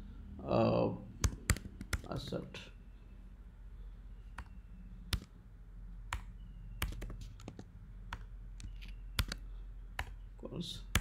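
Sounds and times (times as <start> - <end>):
low steady hum: 0.0 - 11.0
keyboard keys clicking: 1.2 - 2.1, 6.1 - 10.2.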